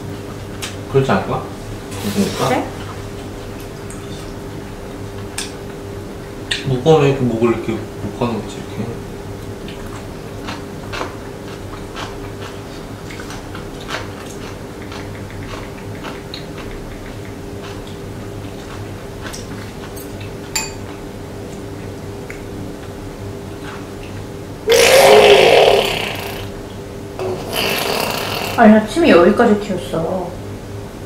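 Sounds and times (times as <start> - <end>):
person spluttering: 24.7 - 26.5, 27.2 - 28.6.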